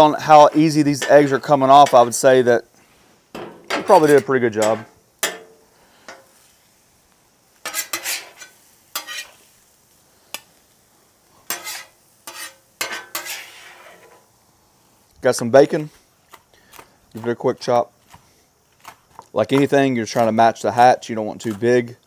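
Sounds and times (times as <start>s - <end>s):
metal spatula scraping griddle: 0.0s - 6.5s, 7.6s - 9.5s, 11.4s - 14.3s.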